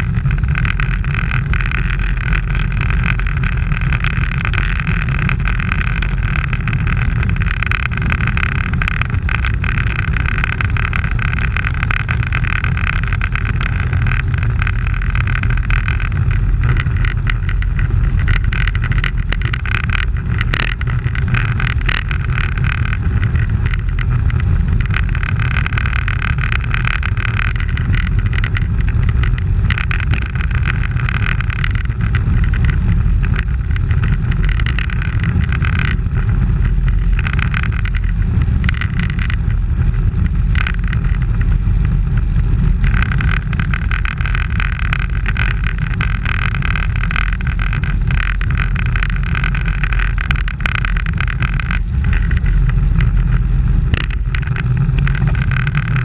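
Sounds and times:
tyre and road noise: 0:00.0 - 0:56.0
wind rushing over microphone: 0:00.0 - 0:56.0.

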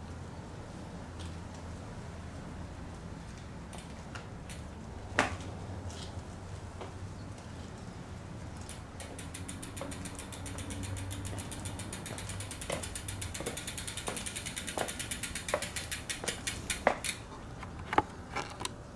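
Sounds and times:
bicycle freehub ticking: 0:03.4 - 0:05.3, 0:08.0 - 0:17.3.

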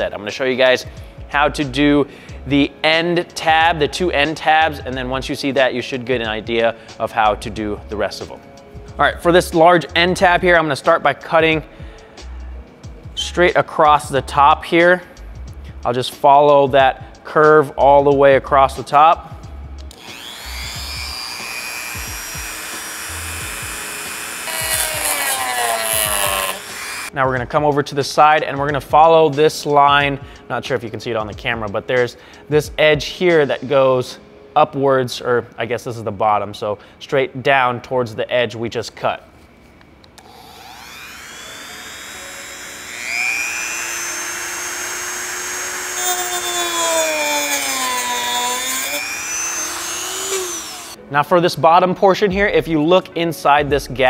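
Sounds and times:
rotary tool cutting plastic: 0:19.9 - 0:27.1, 0:40.2 - 0:51.0
rotary tool whining: 0:19.9 - 0:27.1, 0:40.2 - 0:51.0.

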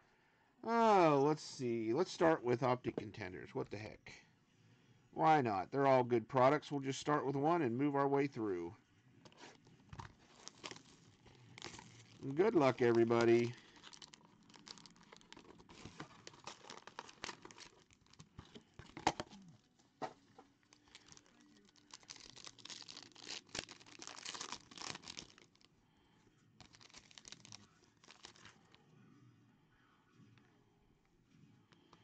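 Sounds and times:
card pack wrapper tearing: 0:10.1 - 0:19.3, 0:20.7 - 0:25.7, 0:26.6 - 0:28.7.

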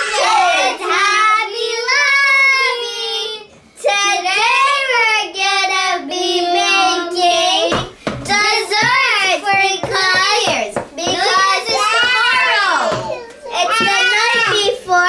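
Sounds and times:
children singing: 0:04.6 - 0:15.0.

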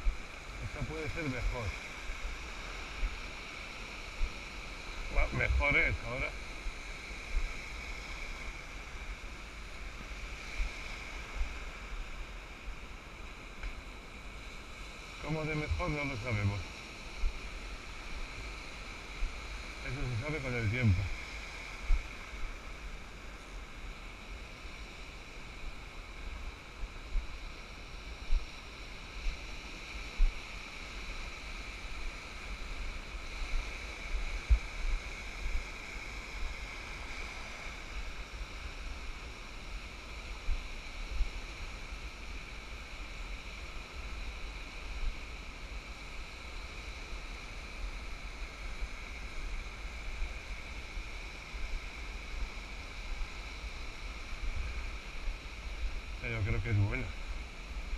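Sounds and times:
surf washing over sand: 0:00.0 - 0:57.9.

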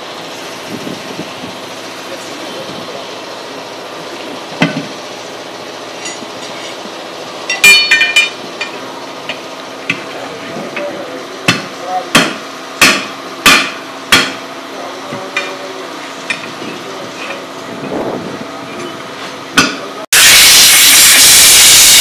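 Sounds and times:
metal clanking with ringing tone: 0:06.0 - 0:06.8, 0:07.4 - 0:10.0
hammer striking metal: 0:07.5 - 0:10.0, 0:11.5 - 0:14.4, 0:19.6 - 0:19.8.

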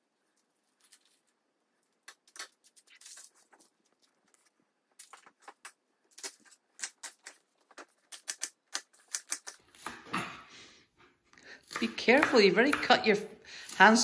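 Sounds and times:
knife chopping on wooden board: 0:11.7 - 0:13.0.

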